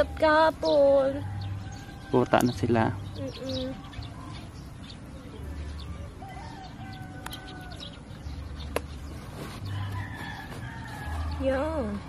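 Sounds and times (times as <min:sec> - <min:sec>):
rooster crowing: 0:05.4 - 0:08.3, 0:09.6 - 0:11.7.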